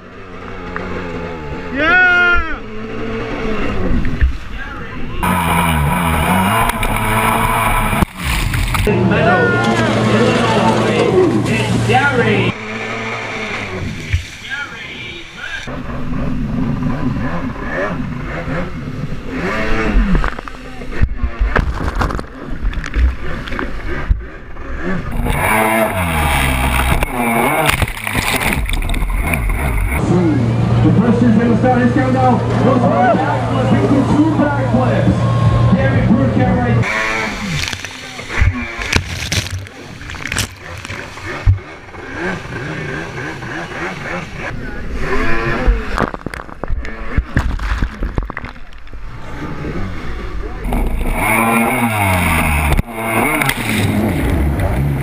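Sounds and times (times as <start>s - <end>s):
jet ski engine revving: 0.0s - 55.0s
water spray splashing: 5.2s - 8.9s, 12.6s - 15.7s, 25.1s - 30.0s, 36.8s - 44.4s, 50.7s - 55.0s.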